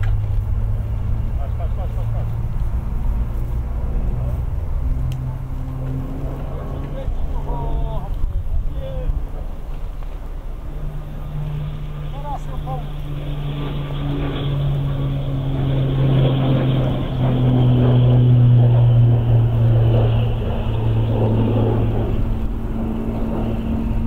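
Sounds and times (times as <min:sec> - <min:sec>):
propeller aircraft flying past: 0:00.0 - 0:24.0.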